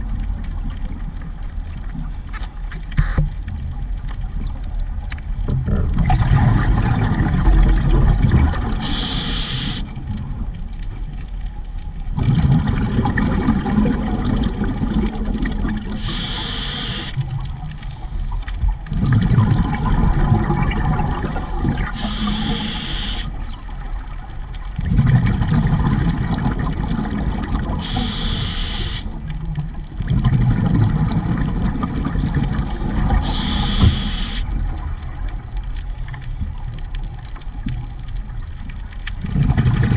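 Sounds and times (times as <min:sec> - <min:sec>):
gurgling exhaust bubbles: 0:05.8 - 0:09.8, 0:12.1 - 0:17.4, 0:18.9 - 0:23.4, 0:24.8 - 0:29.3, 0:29.9 - 0:35.2, 0:39.2 - 0:39.9
hissing regulator inhalations: 0:08.8 - 0:09.8, 0:16.0 - 0:17.2, 0:22.0 - 0:23.3, 0:27.8 - 0:29.1, 0:33.2 - 0:34.4.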